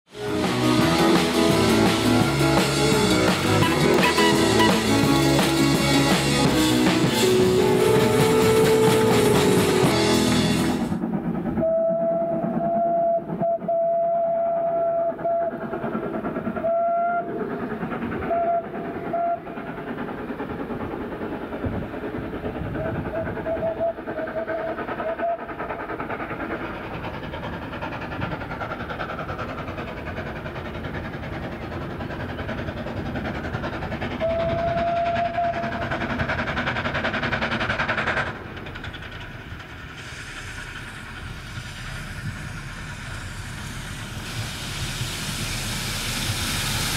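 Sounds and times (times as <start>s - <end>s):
train running noise: 0.1s - 46.9s
steam locomotive whistle: 3.5s - 5.3s, 7.0s - 10.8s, 11.6s - 15.6s, 16.6s - 17.4s, 18.3s - 19.5s, 22.8s - 25.5s, 34.2s - 35.8s.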